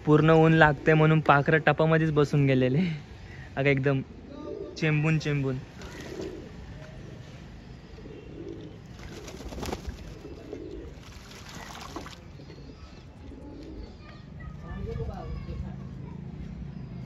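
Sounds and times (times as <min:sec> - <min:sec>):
pigeons cooing: 0:04.0 - 0:14.6
wings flapping and splashing water: 0:08.8 - 0:12.4.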